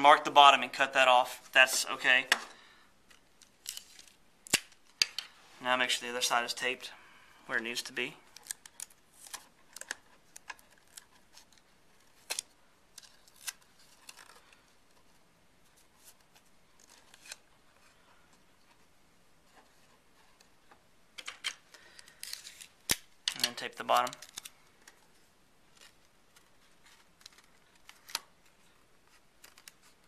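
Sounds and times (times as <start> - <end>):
tape and cardstock clicks and rustles: 8.3 - 15.1, 21.2 - 25.1, 25.7 - 30.0.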